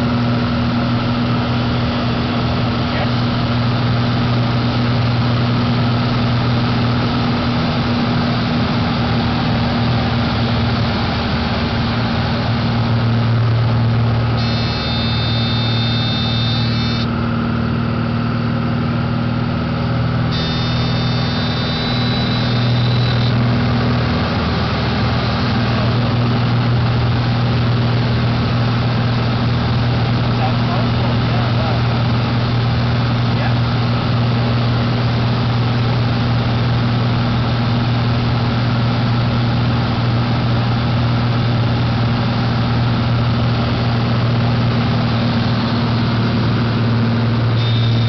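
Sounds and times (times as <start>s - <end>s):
light aircraft engine running: 0.0s - 48.0s
high warning tone: 14.3s - 17.2s, 20.3s - 26.1s, 47.4s - 48.0s.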